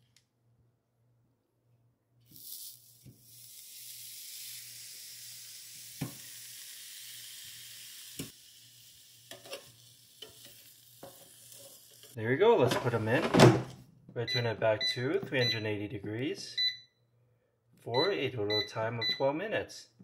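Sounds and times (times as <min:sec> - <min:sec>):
patties sizzling: 0:02.2 - 0:12.2.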